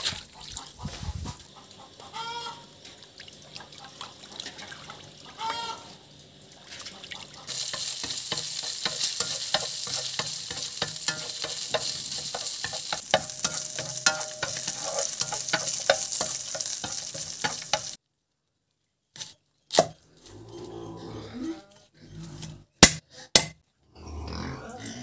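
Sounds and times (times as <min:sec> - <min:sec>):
food sizzling in a pan: 0:07.5 - 0:18.0
utensil scraping a pan: 0:07.5 - 0:18.0.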